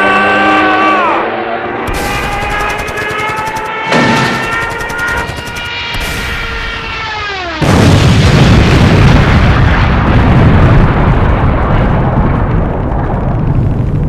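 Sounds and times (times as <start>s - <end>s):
loud bomb explosion: 5.8s - 14.0s
falling bomb whistle: 6.0s - 7.9s.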